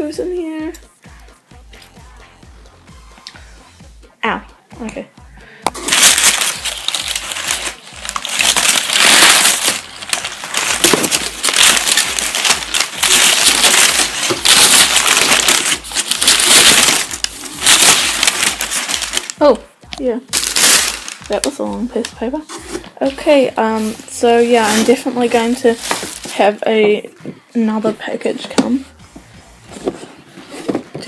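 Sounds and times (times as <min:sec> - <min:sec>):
packing paper rustling and crumpling: 0:05.7 - 0:19.4, 0:20.3 - 0:26.6.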